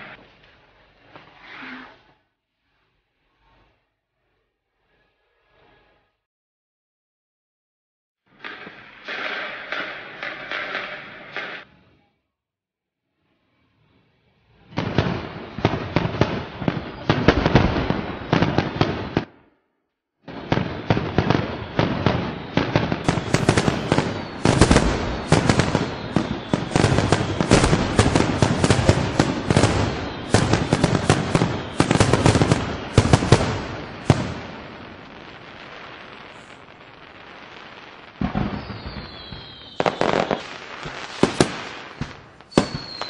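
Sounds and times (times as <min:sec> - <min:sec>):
fireworks crackling and banging: 0:08.3 - 0:11.9, 0:13.5 - 0:19.4, 0:20.2 - 0:43.0.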